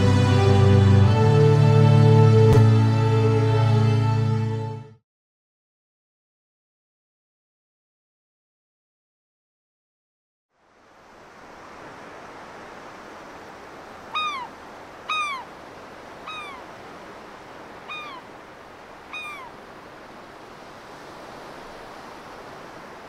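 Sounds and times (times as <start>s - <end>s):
mewing animal calls: 14.1s - 15.5s, 16.2s - 16.8s, 17.8s - 18.3s, 19.0s - 19.6s.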